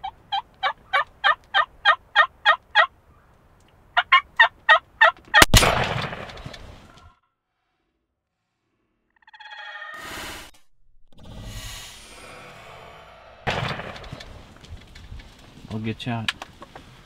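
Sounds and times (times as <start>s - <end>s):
wild turkey yelping: 0.0s - 3.3s, 4.0s - 5.5s, 9.2s - 10.0s
loud shotgun blast with echo: 5.4s - 6.5s, 13.4s - 14.6s.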